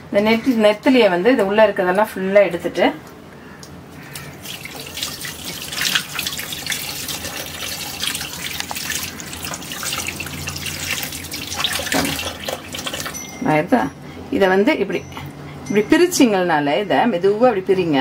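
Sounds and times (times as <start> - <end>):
water splashing: 4.1 - 13.2
tap running: 4.4 - 13.2.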